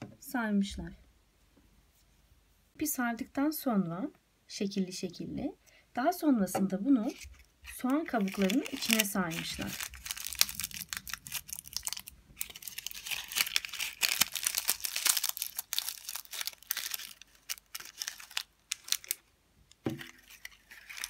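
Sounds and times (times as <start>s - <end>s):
onion skins crackling: 7.0s - 21.0s.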